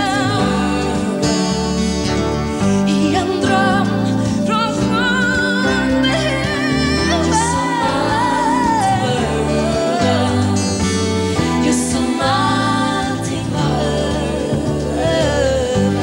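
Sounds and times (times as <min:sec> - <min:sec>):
acoustic guitar: 0:00.0 - 0:16.0
woman singing a slow ballad: 0:00.0 - 0:16.0.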